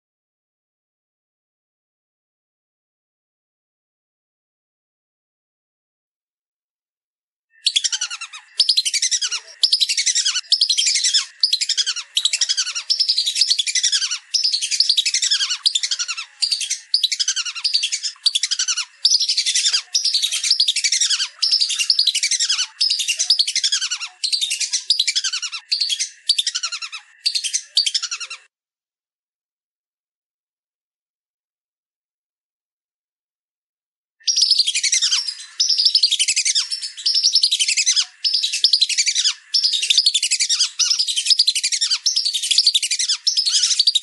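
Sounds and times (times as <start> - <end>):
ducks whistling calls: 7.6 - 28.5, 34.3 - 44.0.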